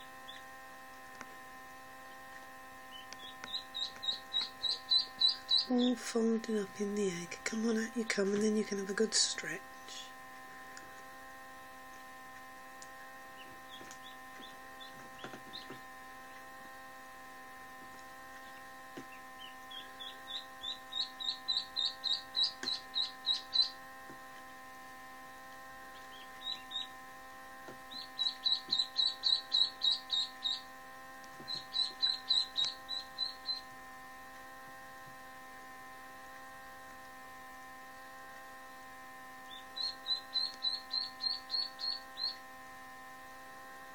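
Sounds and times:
steady hum: 0.0s - 43.9s
duckling peeping: 2.9s - 7.4s, 13.3s - 16.5s, 18.3s - 23.8s, 25.9s - 27.0s, 27.6s - 30.8s, 31.4s - 33.7s, 39.5s - 42.4s.

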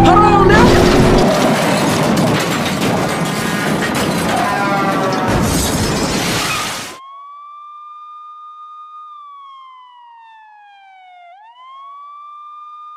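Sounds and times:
police siren wailing: 0.0s - 2.2s, 7.0s - 12.9s
loud burst of noise: 0.5s - 7.0s.

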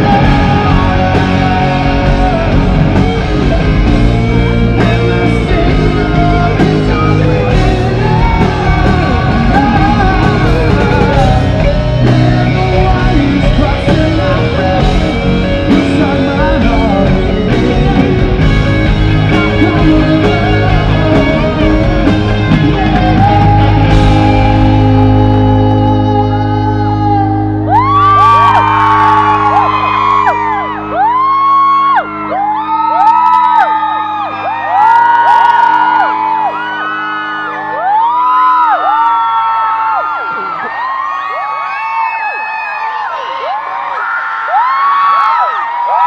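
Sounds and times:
man singing lead vocal: 0.0s - 30.3s
distorted electric guitars: 0.0s - 41.1s
drums: 0.0s - 46.0s.

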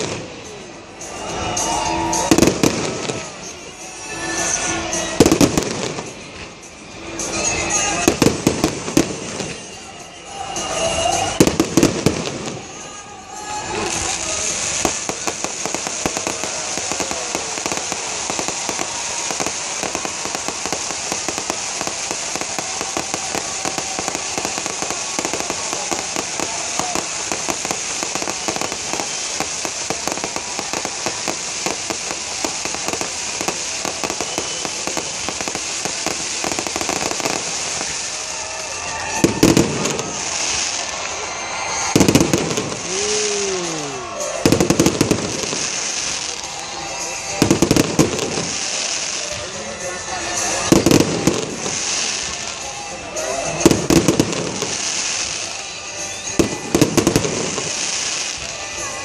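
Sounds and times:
fireworks crackling: 0.0s - 59.0s
hiss of spark fountains: 0.0s - 59.0s
loud firework booms: 39.2s - 40.8s.

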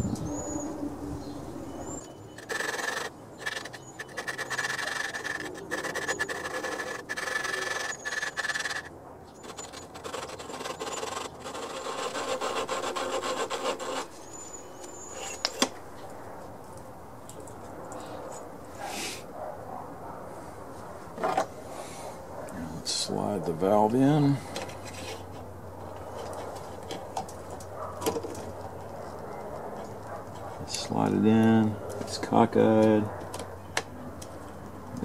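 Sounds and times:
valve lapping grinding rub: 2.4s - 8.9s.

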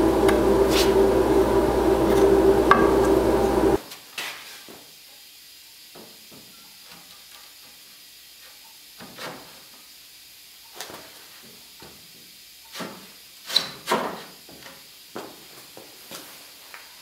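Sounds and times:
shoes scuffing on concrete floor: 0.6s - 1.0s, 3.8s - 4.8s, 14.2s - 16.4s
faint steady hiss: 3.5s - 17.0s.

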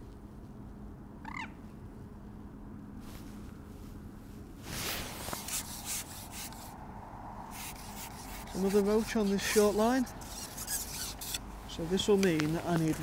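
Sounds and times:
fishing pole rubbing: 4.6s - 6.8s, 7.5s - 11.5s.

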